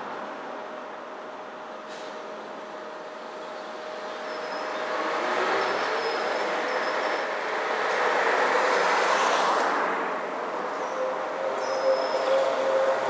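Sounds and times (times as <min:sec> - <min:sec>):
tyre and traffic noise: 0:00.0 - 0:13.0
trolleybus motor whine: 0:10.3 - 0:13.0.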